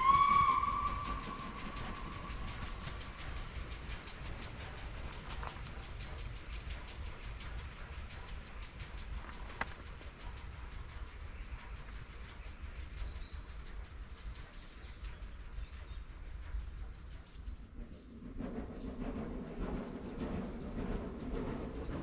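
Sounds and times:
loud deep rumble: 0.0 - 12.7
steady low rumble: 0.0 - 22.0.

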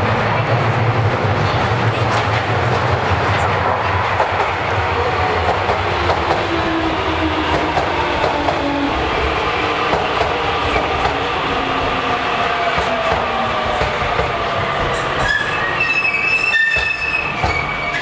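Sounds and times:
train wheels clicking on rail joints: 12.6 - 18.0.

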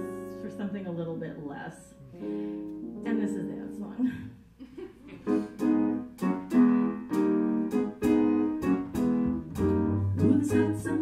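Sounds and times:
piano chords: 0.0 - 4.4, 5.1 - 11.0
deep bass notes: 5.2 - 11.0.

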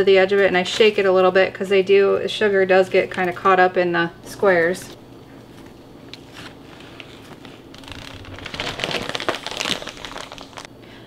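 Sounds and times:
plastic bag rustling: 5.4 - 10.7.

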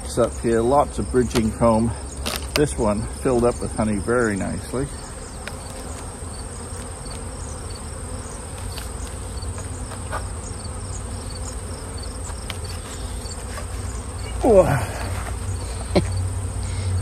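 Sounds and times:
honeybees buzzing: 0.0 - 17.0
hive tool clicking on wood: 5.4 - 6.1, 12.2 - 12.9.

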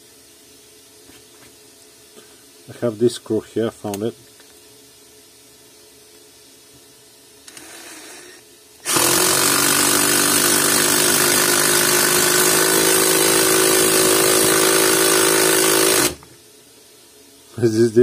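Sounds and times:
impact driver driving screw into wood: 7.5 - 16.3.

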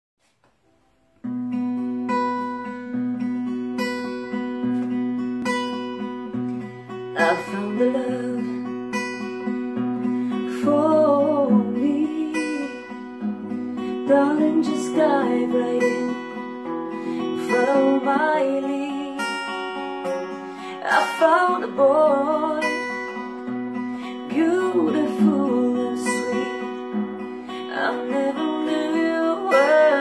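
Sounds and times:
acoustic guitar strumming: 0.6 - 30.0
woman singing: 6.8 - 30.0.

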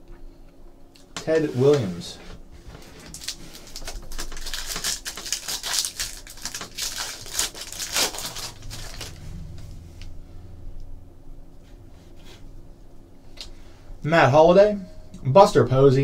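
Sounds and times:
foil wrapper tearing and crinkling: 2.8 - 9.2
cards rustling and ticking: 2.8 - 9.3.

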